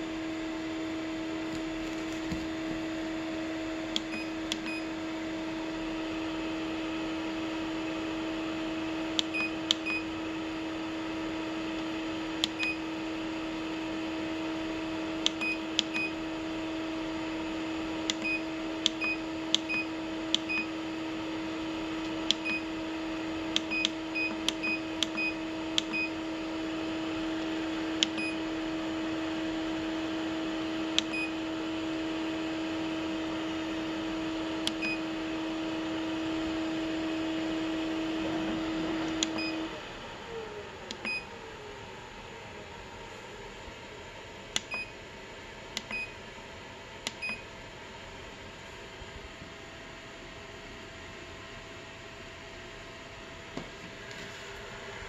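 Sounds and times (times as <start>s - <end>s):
printer cooling fan humming: 0.0s - 55.0s
button clicks with beeps: 47.1s - 47.4s.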